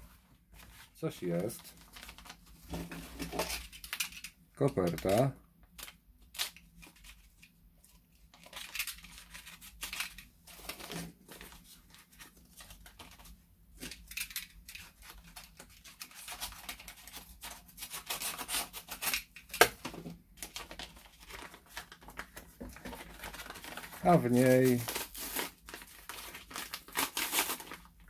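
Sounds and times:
paper tearing and crinkling: 0:13.9 - 0:19.3, 0:20.5 - 0:28.0.

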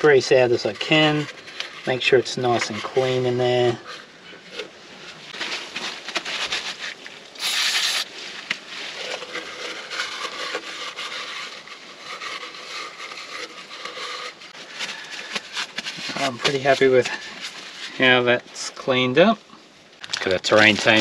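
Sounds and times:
paper towel scrunching against metal: 0:00.0 - 0:18.7, 0:20.5 - 0:21.0
aerosol spray hiss: 0:07.4 - 0:08.1.

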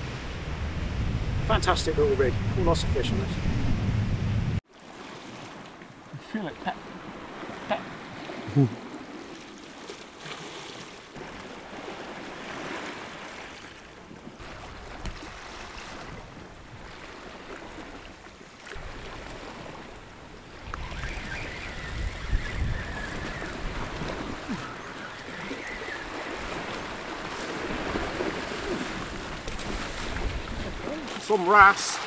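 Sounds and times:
wind buffeting microphone: 0:00.0 - 0:04.6, 0:18.8 - 0:31.2
sea washing against rocks: 0:18.7 - 0:32.0.

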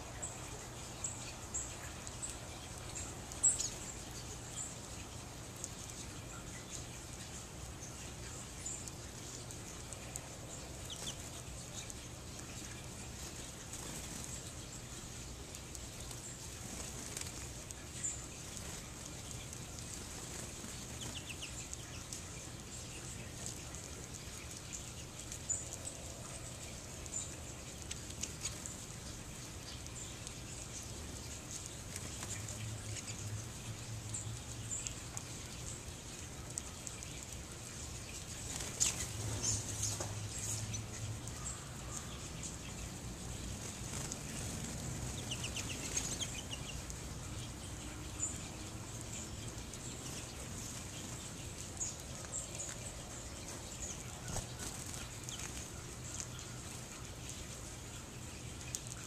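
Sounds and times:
finches chirping: 0:00.0 - 0:59.0.

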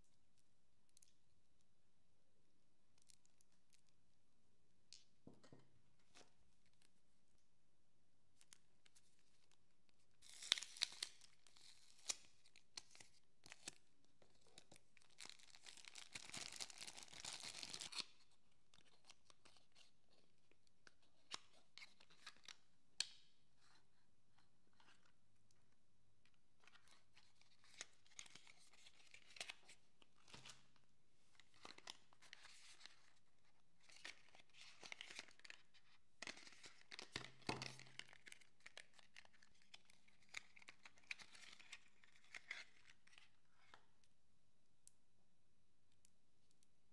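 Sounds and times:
plastic wrap tearing and crinkling: 0:15.2 - 0:18.0.

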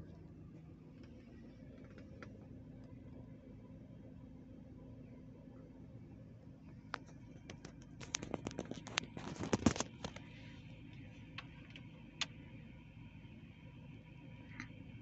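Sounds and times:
low hum in car cabin: 0:00.0 - 0:15.0
sharp clicks and rattles: 0:01.0 - 0:02.4, 0:06.8 - 0:10.3.

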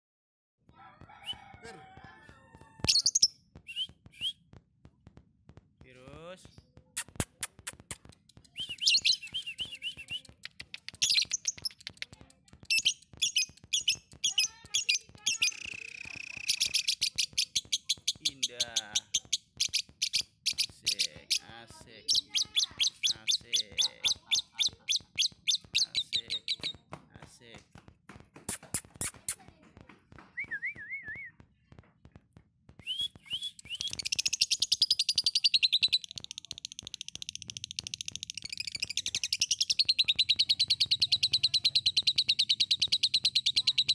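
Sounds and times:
lovebird chirping and trilling: 0:02.8 - 0:04.2, 0:08.5 - 0:12.0, 0:12.6 - 0:26.8, 0:33.3 - 0:43.9
bird sharp clicks: 0:07.0 - 0:21.4.

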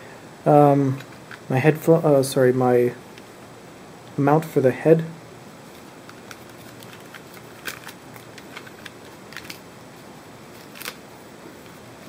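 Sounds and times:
faint handling clicks and rustles: 0:05.6 - 0:12.0.

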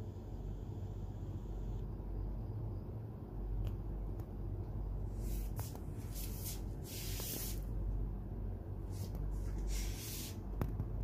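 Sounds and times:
steady low rumble: 0:00.0 - 0:11.0
hissing rustling noise bursts: 0:05.1 - 0:07.7, 0:08.9 - 0:10.5.

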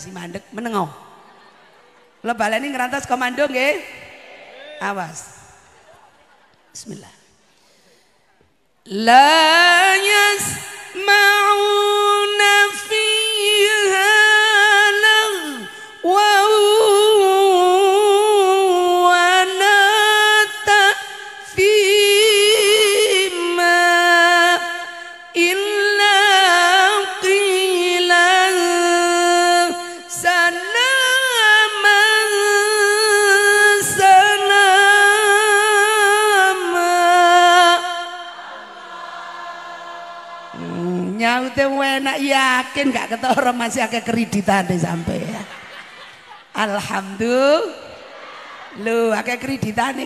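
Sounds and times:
woman singing unaccompanied: 0:08.9 - 0:38.4.

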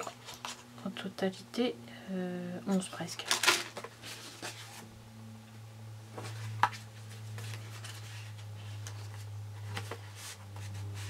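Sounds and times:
steady low hum: 0:00.0 - 0:11.0
paper rustling and tapping: 0:06.2 - 0:11.0.

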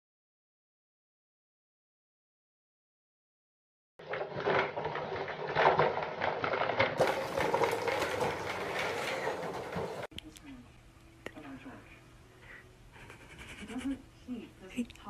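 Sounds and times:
toy wagon rattling on tile: 0:04.0 - 0:10.1.

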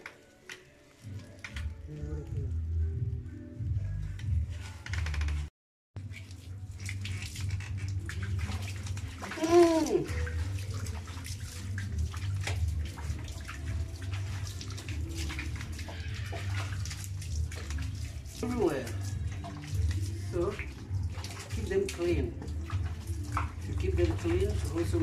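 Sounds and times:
water splashing and sloshing: 0:00.0 - 0:02.9, 0:04.0 - 0:25.0
scrubbing wet dog coat: 0:06.0 - 0:25.0.

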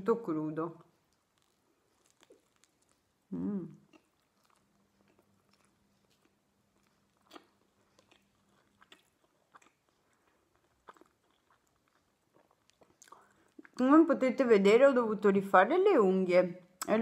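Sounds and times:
chewing crisp pizza: 0:00.8 - 0:13.8
small crunches: 0:01.1 - 0:03.1.

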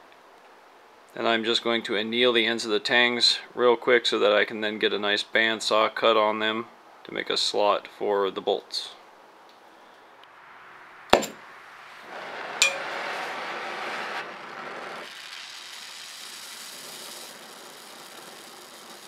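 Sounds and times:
torch flame hissing: 0:11.1 - 0:19.0.

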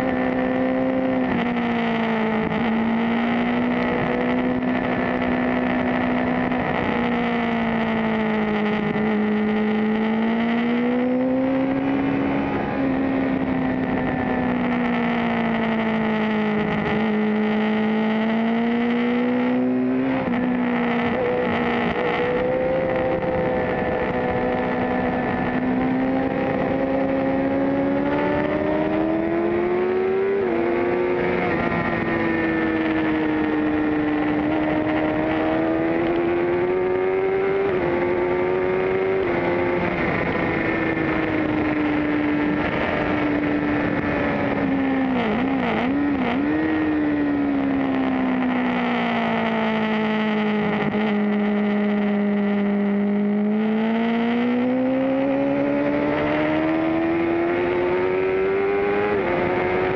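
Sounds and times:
motorcycle engine at high revs: 0:00.0 - 0:59.9.

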